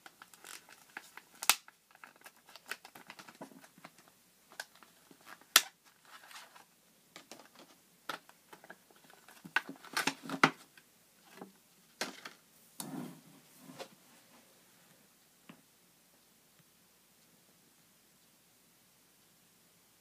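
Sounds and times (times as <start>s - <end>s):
plastic blister pack crackling: 0.0s - 6.7s.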